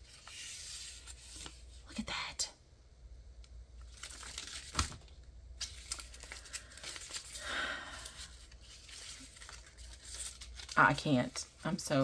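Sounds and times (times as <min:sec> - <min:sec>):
plastic tape rustling and crinkling: 0:03.8 - 0:12.0.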